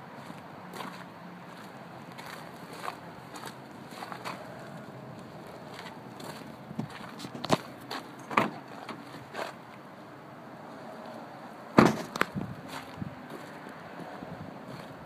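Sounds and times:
car door shutting with a thud: 0:11.8 - 0:12.3.

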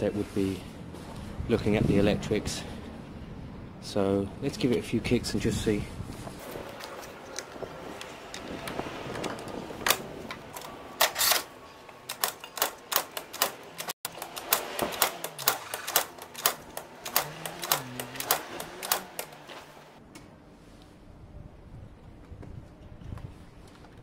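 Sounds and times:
scooter kick-start lever clacking: 0:08.6 - 0:19.5.

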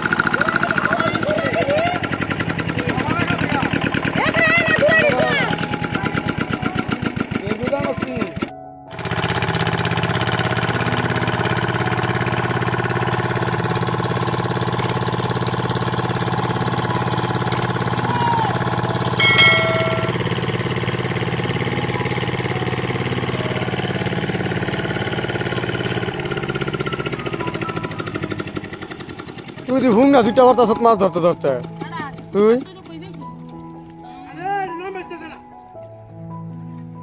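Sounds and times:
engine-driven water pump running: 0:00.0 - 0:33.8
short electronic chime: 0:19.2 - 0:20.3.

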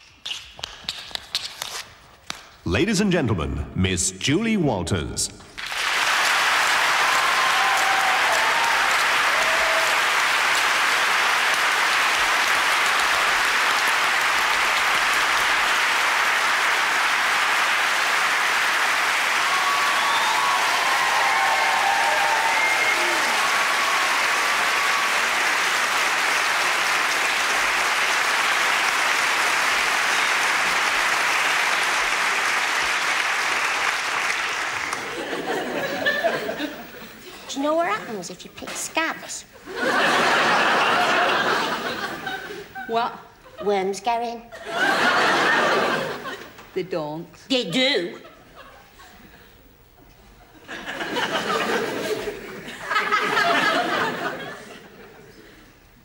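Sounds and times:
studio audience applauding: 0:05.6 - 0:36.7.

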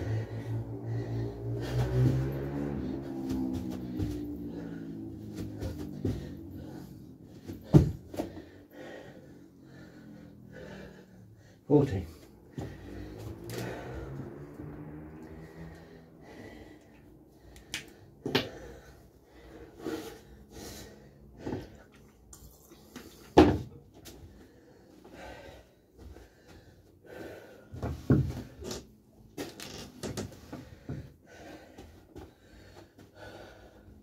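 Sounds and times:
man breathing heavily: 0:00.0 - 0:29.5, 0:30.2 - 0:34.0
knocks and thumps in room: 0:01.8 - 0:08.5, 0:23.2 - 0:24.2, 0:27.7 - 0:28.7.

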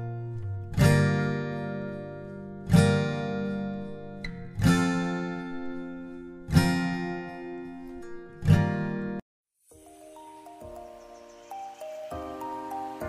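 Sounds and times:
acoustic guitar strumming chords: 0:00.0 - 0:09.2.

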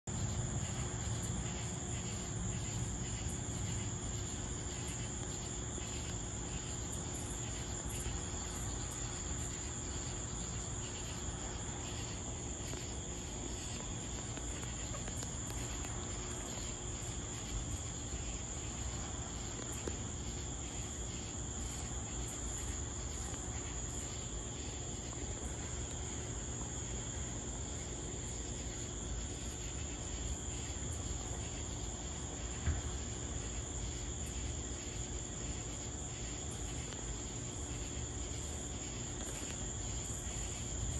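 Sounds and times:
crickets chirping: 0:00.0 - 0:40.9.

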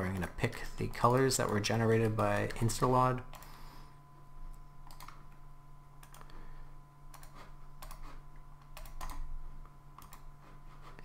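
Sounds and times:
low electrical hum: 0:00.0 - 0:11.0
computer mouse clicking: 0:00.2 - 0:03.6, 0:04.8 - 0:05.4, 0:06.0 - 0:06.3, 0:07.1 - 0:11.0.

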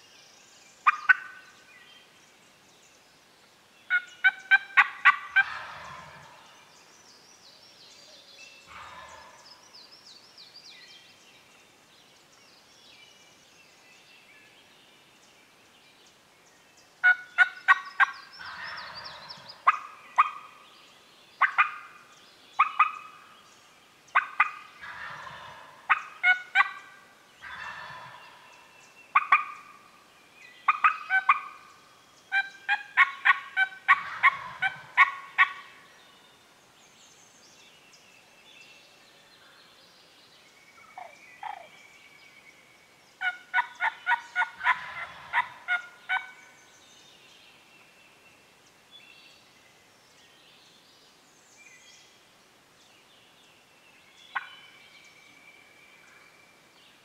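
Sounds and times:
wild turkeys calling: 0:00.8 - 0:01.4, 0:03.9 - 0:06.4, 0:17.0 - 0:20.6, 0:21.4 - 0:22.0, 0:22.6 - 0:23.3, 0:24.1 - 0:29.9, 0:30.7 - 0:31.7, 0:32.3 - 0:35.8, 0:40.9 - 0:41.7, 0:43.2 - 0:46.4, 0:54.3 - 0:54.6
turkey gobbles: 0:03.9 - 0:06.4, 0:32.3 - 0:35.6, 0:43.2 - 0:46.3.

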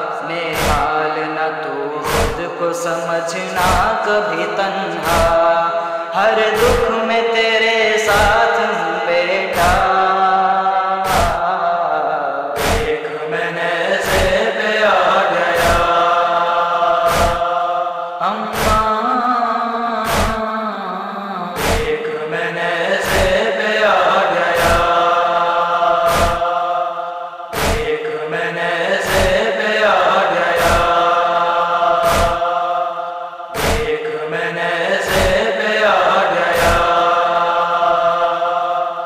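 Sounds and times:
chanted vocals: 0:00.0 - 0:39.0
deep thumps: 0:02.1 - 0:02.4, 0:11.1 - 0:11.4, 0:12.6 - 0:13.0, 0:16.9 - 0:17.5, 0:26.0 - 0:26.5, 0:27.5 - 0:28.0, 0:32.0 - 0:32.4, 0:33.6 - 0:34.0.

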